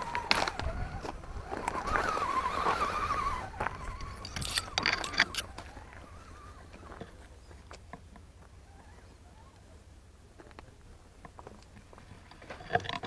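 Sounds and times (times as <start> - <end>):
loose stones crunching: 0.0 - 9.1, 10.4 - 13.0
electric motor and gears whining: 0.0 - 13.0.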